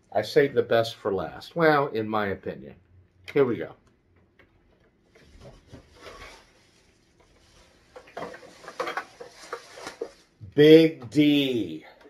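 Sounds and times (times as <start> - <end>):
plastic bag rustling: 5.1 - 10.4.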